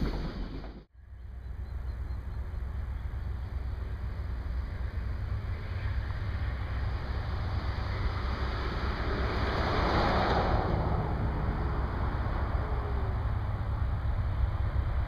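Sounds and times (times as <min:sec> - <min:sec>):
vehicle passing: 0:03.6 - 0:15.0.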